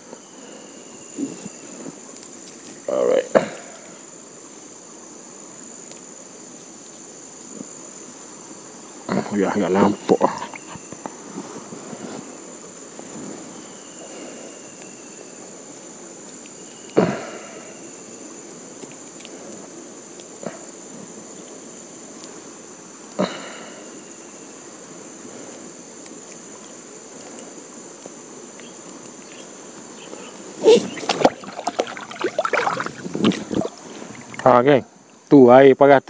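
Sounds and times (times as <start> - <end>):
high insect drone: 0.0 - 36.0
moving river water: 26.2 - 35.3
water splashes: 30.5 - 34.6.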